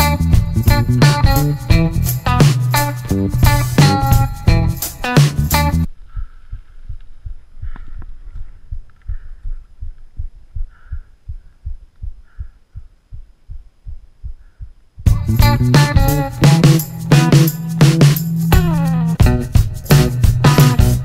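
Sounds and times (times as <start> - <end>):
low thumping pulse: 5.9 - 15.6.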